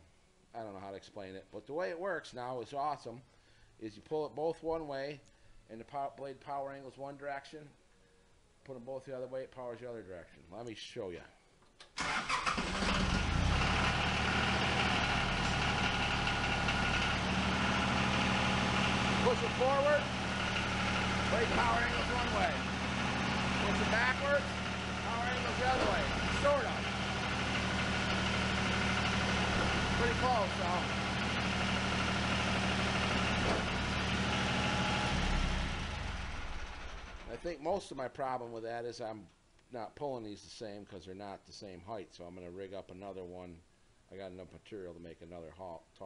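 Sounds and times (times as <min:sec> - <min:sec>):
garden tractor engine idling: 0:12.0 - 0:37.3.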